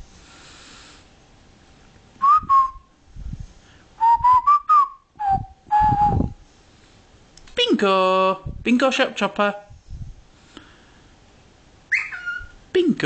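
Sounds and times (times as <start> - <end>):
whistled tune: 2.2 - 2.8, 4.0 - 6.3.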